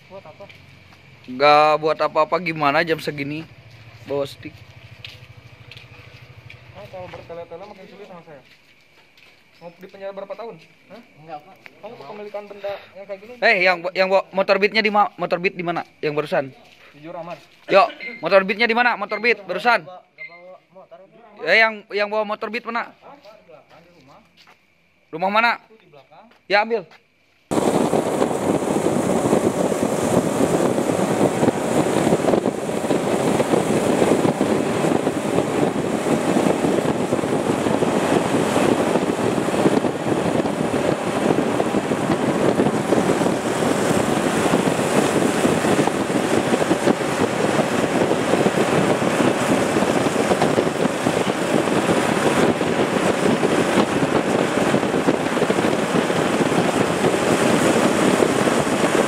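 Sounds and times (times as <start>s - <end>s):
motorcycle engines running: 0.0s - 8.1s, 27.5s - 59.0s
wind on microphone: 27.5s - 59.0s.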